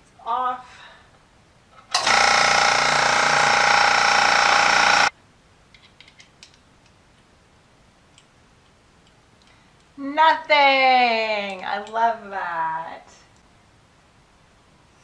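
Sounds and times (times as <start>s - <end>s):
air compressor running: 2.0s - 5.1s.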